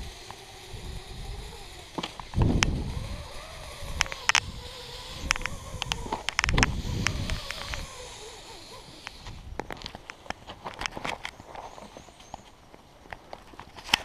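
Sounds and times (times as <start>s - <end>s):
rope and gear clicks and scrapes: 8.6s - 12.5s.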